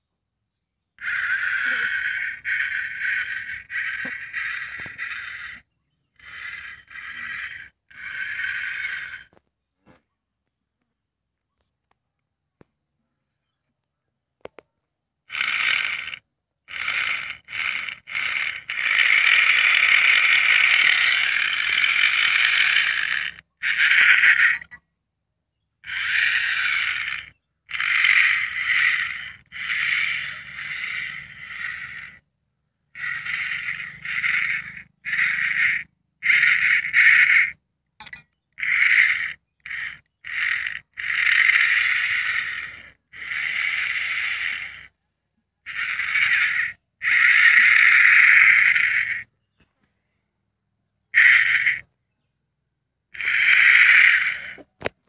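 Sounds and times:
small motor whirring through gears: 1.0s - 5.6s, 6.2s - 9.3s, 15.3s - 24.7s, 25.9s - 32.2s, 33.0s - 37.6s, 38.6s - 44.9s, 45.7s - 49.3s, 51.2s - 51.8s, 53.2s - 54.6s.

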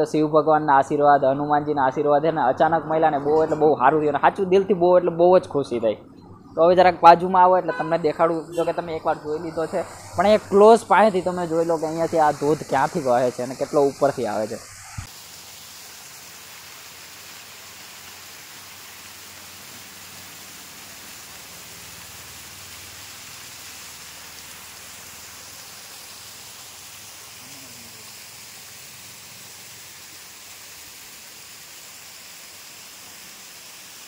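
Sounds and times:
waterfall splashing onto rocks: 8.3s - 34.0s.

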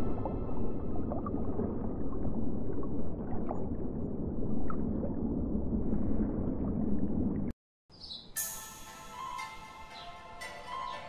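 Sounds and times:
underwater watery rush: 0.0s - 7.5s.

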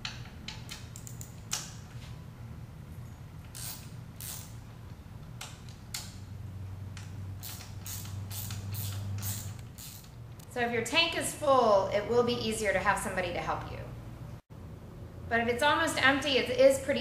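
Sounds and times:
socket ratchet strokes: 3.5s - 4.7s, 7.0s - 10.4s.

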